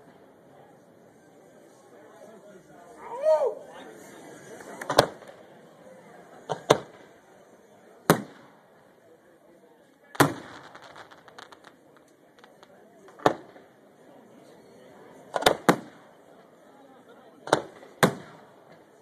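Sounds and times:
firework shells bursting: 10.2s - 13.7s
firework crackles: 10.2s - 13.8s.

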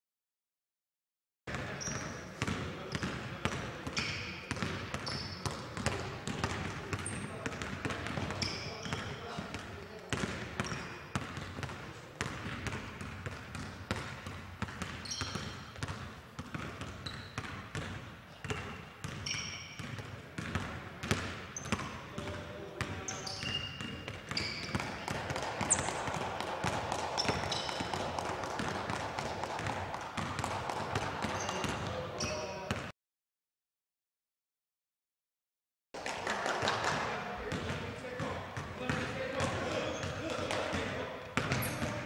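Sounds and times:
basketballs bouncing on floor: 1.5s - 32.9s, 36.0s - 42.0s
shoe squeaks: 3.9s - 4.4s, 5.0s - 5.6s, 8.3s - 9.2s, 10.6s - 11.1s, 15.0s - 15.7s, 17.0s - 17.4s, 19.2s - 19.8s, 23.0s - 24.9s, 27.2s - 27.9s, 31.4s - 32.7s, 41.5s - 41.9s.

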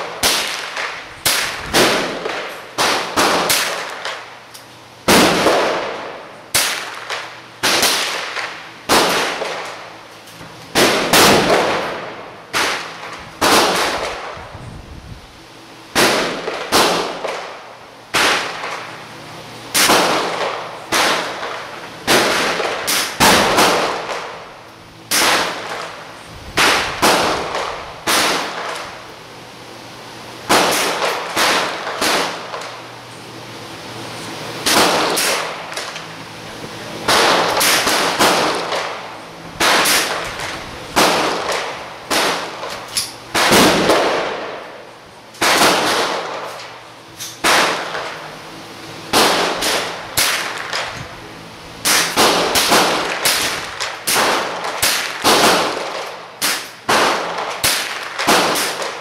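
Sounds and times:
rifle shots with echo: 0.0s - 4.3s, 5.0s - 9.8s, 10.7s - 14.4s, 16.0s - 18.9s, 19.7s - 24.5s, 25.1s - 26.0s, 26.6s - 29.0s, 30.5s - 32.8s, 34.6s - 36.0s, 37.1s - 44.8s, 45.4s - 46.7s, 47.4s - 48.2s, 49.1s - 50.9s, 51.8s - 59.0s.

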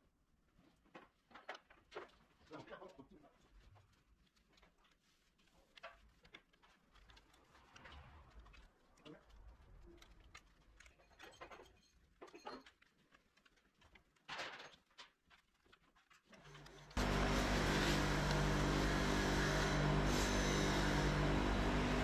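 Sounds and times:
machine humming and hissing: 17.0s - 22.0s.

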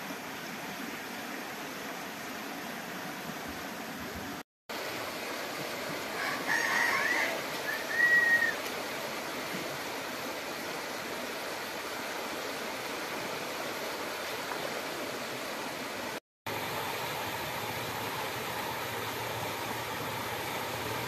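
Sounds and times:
steady background hiss: 0.0s - 21.0s
rooster crowing: 6.1s - 8.6s.

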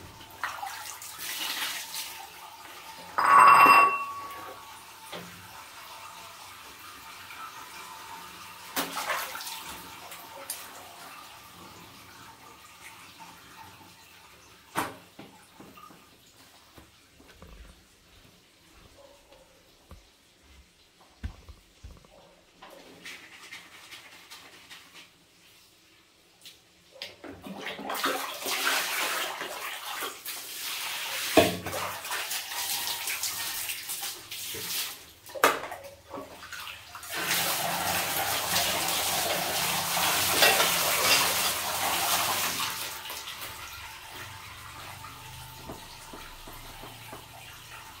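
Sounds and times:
water splashing and sloshing: 0.0s - 2.8s, 8.0s - 14.0s, 26.4s - 48.0s
water pouring: 0.0s - 14.3s, 27.3s - 48.0s.

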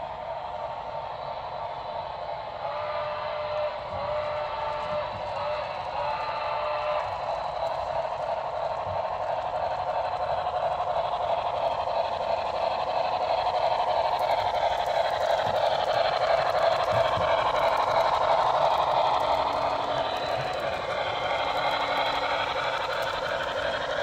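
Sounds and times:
model train running sound: 0.0s - 24.0s
wheels clicking over rail joints: 6.9s - 24.0s.

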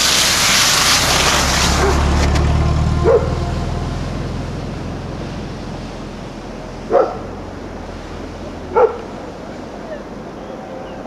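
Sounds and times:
dog barking: 1.8s - 2.1s, 3.0s - 3.4s, 6.9s - 7.3s, 8.7s - 9.1s.

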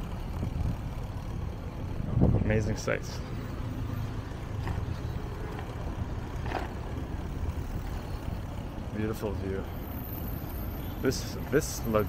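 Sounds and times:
wind buffeting microphone: 0.0s - 2.8s.

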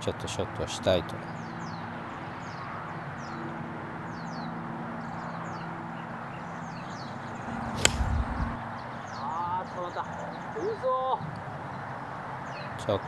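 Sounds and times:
golf club striking ball: 7.6s - 8.6s
club swing whoosh: 7.7s - 8.6s.

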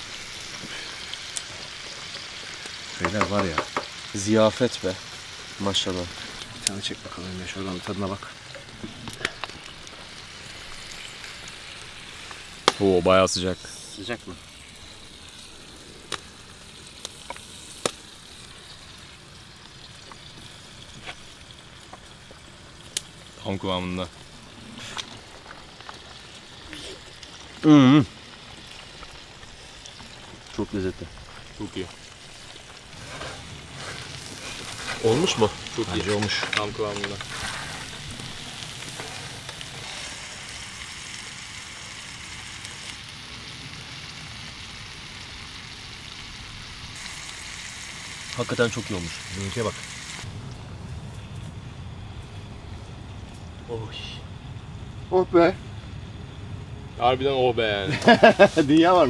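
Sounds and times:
food sizzling: 0.0s - 59.0s
sharp pops: 3.0s - 4.0s, 12.3s - 12.9s, 17.0s - 18.0s.

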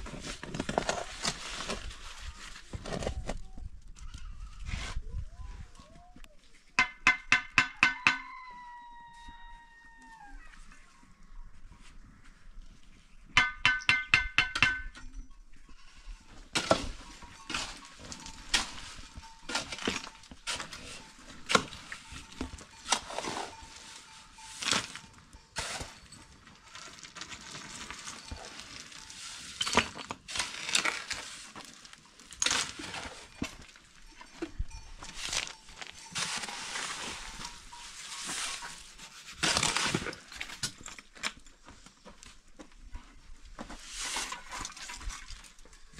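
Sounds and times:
shovel scraping mortar in wheelbarrow: 0.0s - 3.4s, 16.4s - 33.7s, 35.1s - 40.8s, 43.7s - 45.4s
blocks knocking and clinking: 13.4s - 15.2s.

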